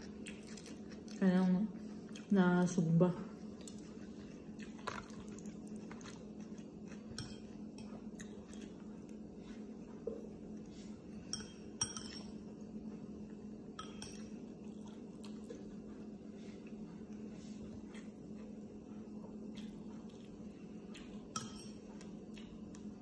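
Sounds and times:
person chewing: 0:00.0 - 0:01.2, 0:03.5 - 0:10.7
steady low hum: 0:00.0 - 0:23.0.

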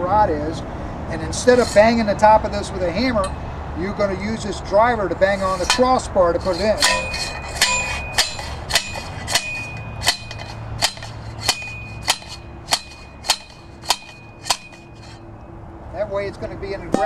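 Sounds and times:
metal rod striking ringing blows: 0:06.8 - 0:15.2.

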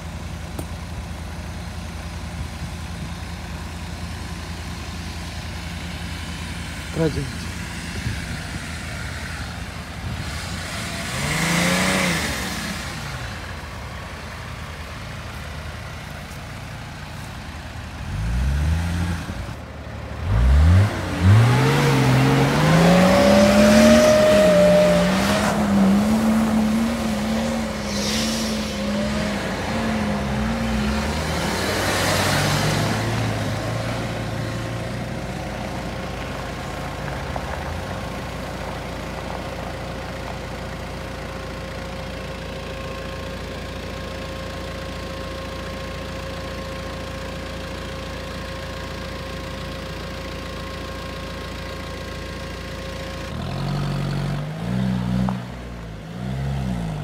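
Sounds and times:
car engine revving: 0:06.5 - 0:15.9, 0:17.8 - 0:38.3.

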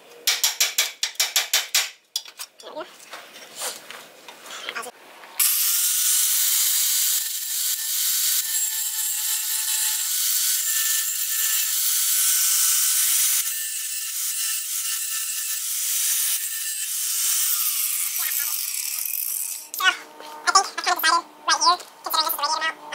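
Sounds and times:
angle grinder cutting steel: 0:05.4 - 0:19.8.

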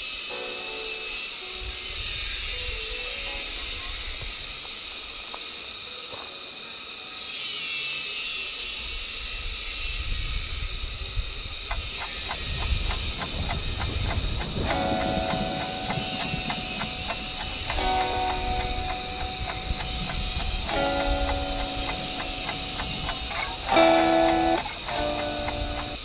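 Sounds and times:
insect chorus: 0:00.0 - 0:26.0
fast run of clicks: 0:11.7 - 0:26.0.

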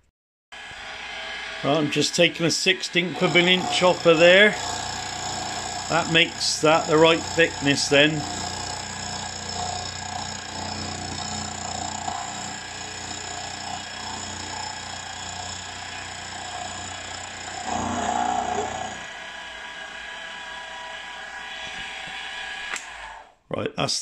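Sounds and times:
milling machine cutting metal: 0:00.6 - 0:23.1
low hum: 0:15.6 - 0:23.0.

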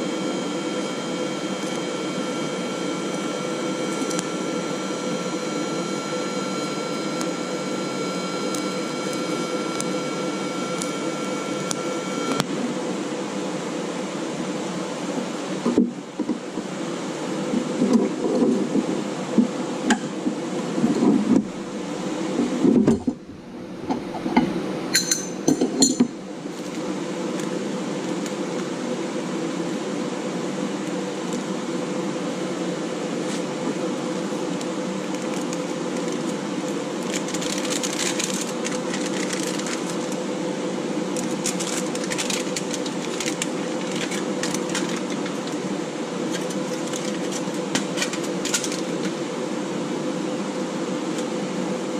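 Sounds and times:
cooling fan hum: 0:00.0 - 0:51.9
sharp metal clinks: 0:25.0 - 0:26.1
aluminum foil crinkling: 0:34.6 - 0:40.2, 0:41.2 - 0:49.1.

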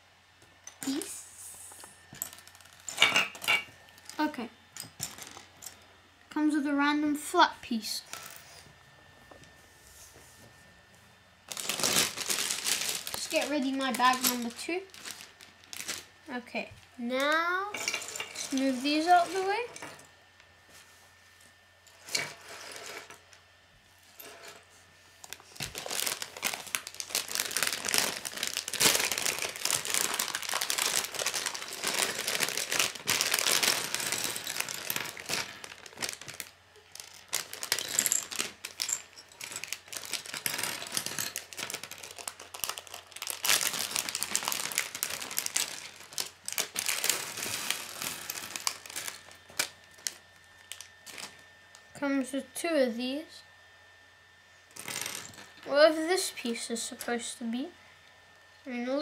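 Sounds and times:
plastic bag crinkling: 0:02.2 - 0:03.1, 0:11.4 - 0:16.4, 0:18.4 - 0:19.7, 0:25.2 - 0:51.4
plastic pieces clattering on table: 0:25.6 - 0:51.3.

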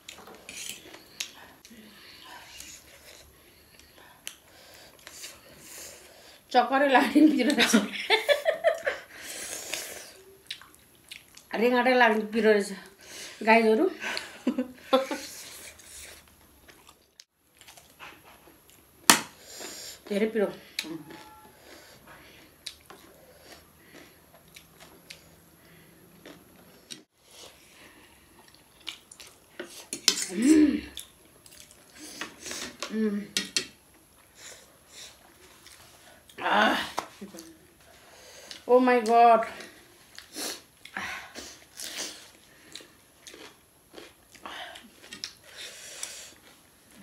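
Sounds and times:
people chewing and slurping noodles: 0:14.0 - 0:38.7, 0:39.6 - 0:47.0.

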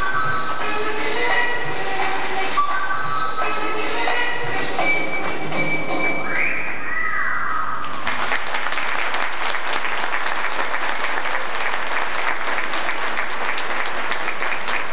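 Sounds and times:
music: 0:00.0 - 0:14.9
audience applauding: 0:07.8 - 0:14.9.

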